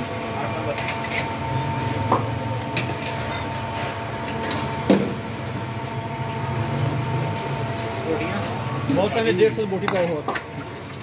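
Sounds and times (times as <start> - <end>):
mechanical hum with high whine: 0.0 - 11.0
utensils clinking against pots: 0.7 - 1.4.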